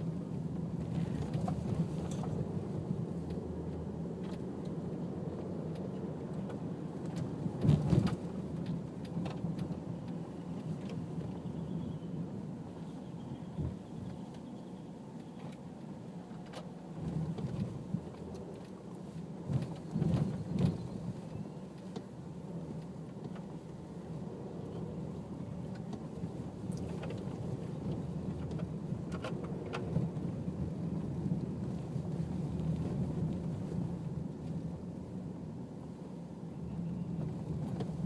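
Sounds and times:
road traffic rumble: 0.0 - 38.0.

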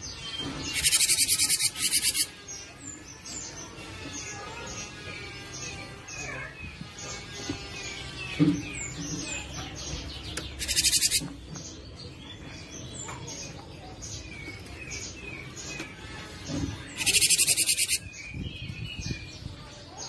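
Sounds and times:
bird whistling and chirping: 0.7 - 2.3, 10.6 - 11.3, 17.0 - 18.4
harsh buzzing rattle: 0.7 - 2.3, 10.6 - 11.2, 17.0 - 18.0.

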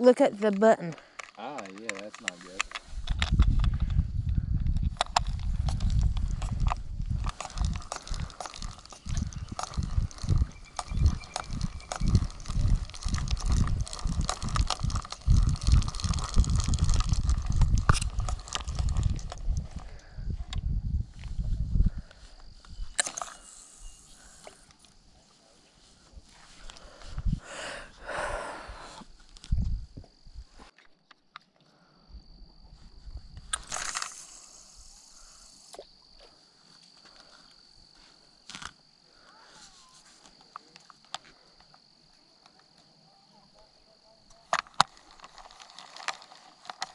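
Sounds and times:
high insect drone: 0.0 - 30.6, 31.8 - 46.9
sharp clicks: 0.3 - 4.0, 4.8 - 20.6
line hissing off reel: 22.9 - 24.8, 33.6 - 35.8
fishing reel click: 23.0 - 24.8, 33.6 - 35.8.

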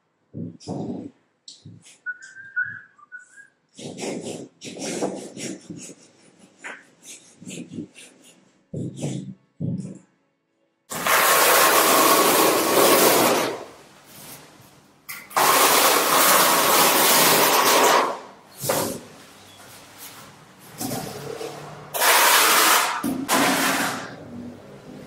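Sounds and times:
trowel scraping adhesive on concrete: 3.8 - 9.4, 10.9 - 13.6, 15.4 - 19.0, 22.0 - 24.2.

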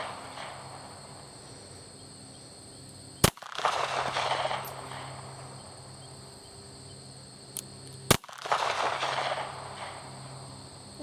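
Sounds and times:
pistol shot with echo: 3.2 - 5.4, 8.1 - 10.1.

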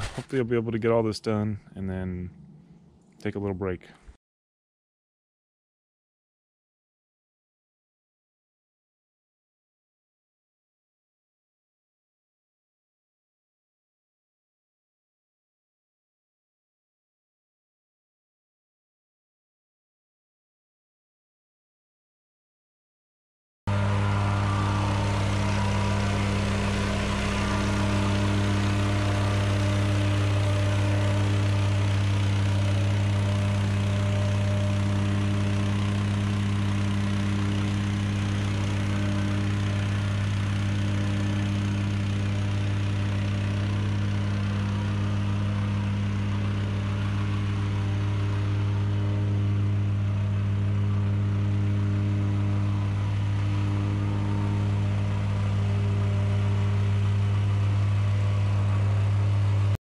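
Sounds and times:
earthmoving machine engine humming: 0.0 - 3.8, 23.7 - 59.8.

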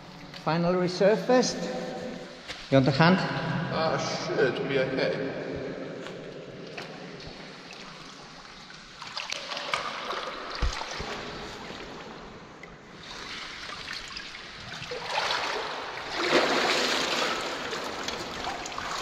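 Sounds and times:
water splashing and trickling: 6.2 - 19.0.

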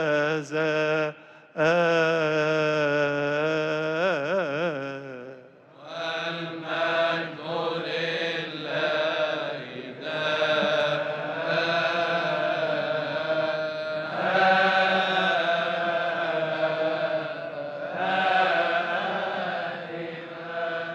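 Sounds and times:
voices chanting: 5.8 - 20.9.

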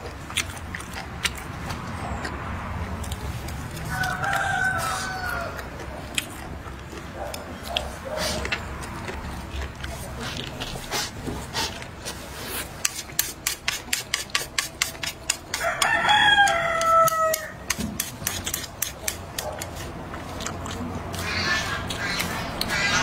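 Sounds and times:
chewing and mouth clicks: 0.0 - 23.0
rooster crowing: 3.8 - 5.8, 15.5 - 17.7.

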